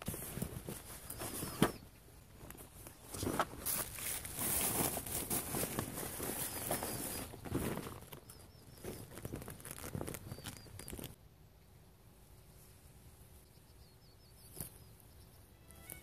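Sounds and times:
fabric bag rustling and crinkling: 0.0s - 11.2s.

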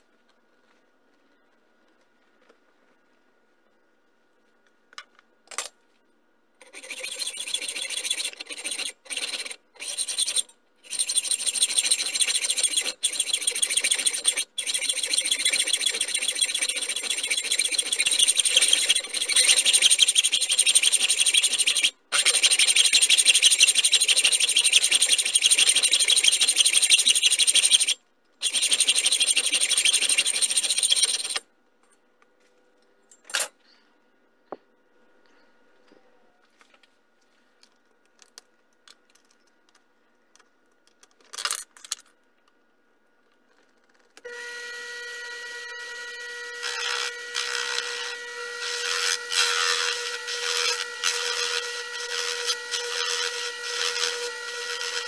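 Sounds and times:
hacksaw rasping through metal: 6.6s - 31.4s.

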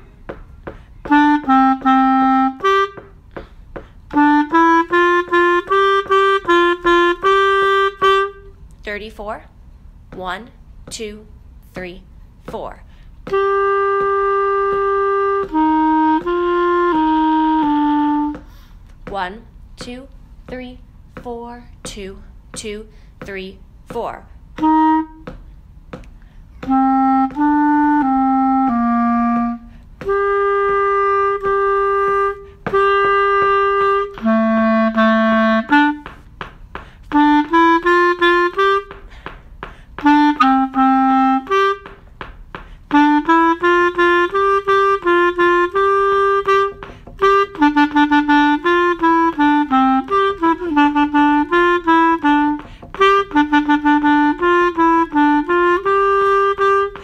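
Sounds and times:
solo clarinet: 0.0s - 8.6s, 13.2s - 18.5s, 24.6s - 25.5s, 26.4s - 36.4s, 37.0s - 39.3s, 39.9s - 42.3s, 42.9s - 57.0s.

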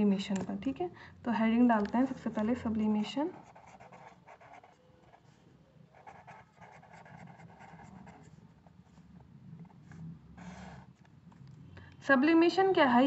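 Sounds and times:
pen scratching on paper: 1.8s - 11.4s.

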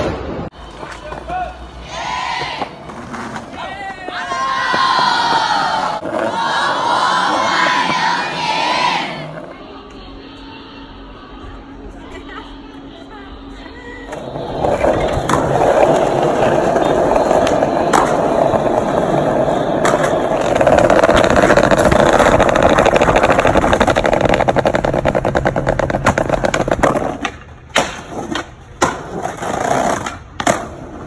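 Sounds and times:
skateboard wheels rolling on brick: 0.5s - 10.0s, 14.0s - 31.0s
skateboard clacks: 14.1s - 31.0s.

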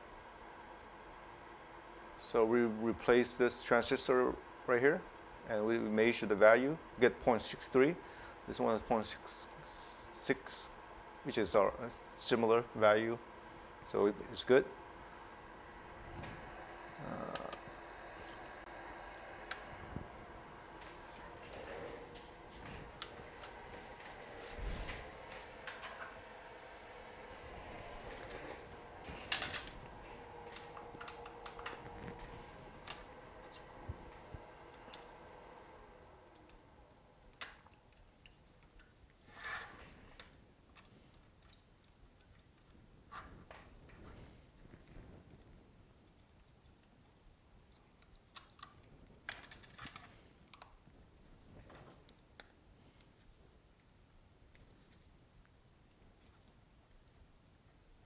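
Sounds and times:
faint steady hum: 0.0s - 58.0s
small clicks from handling metal: 40.2s - 42.8s, 46.1s - 50.8s.

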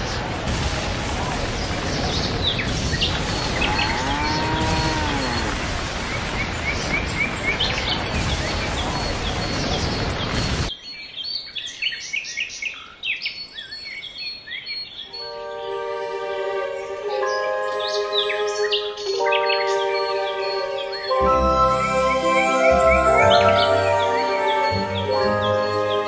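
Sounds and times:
storm-like rushing noise: 0.0s - 10.7s
birds chirping: 0.0s - 26.0s
cow mooing: 3.7s - 5.5s.

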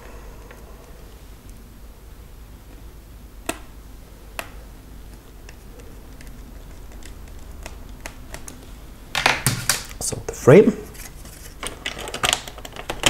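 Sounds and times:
plastic parts clicking: 11.0s - 13.0s.

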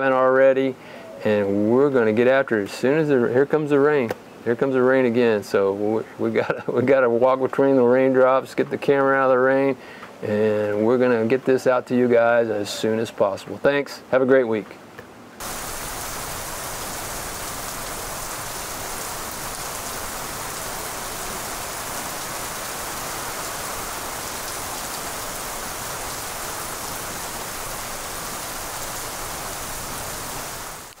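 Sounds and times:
heavy rain on trees: 15.4s - 31.0s.

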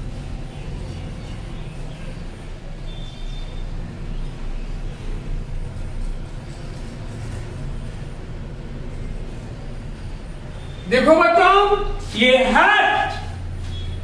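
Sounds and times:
marker squeaking on whiteboard: 12.9s - 14.0s.

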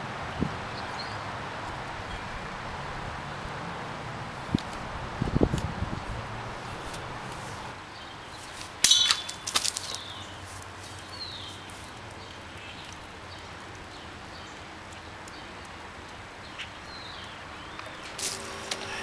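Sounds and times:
bird chirps: 7.9s - 10.4s.

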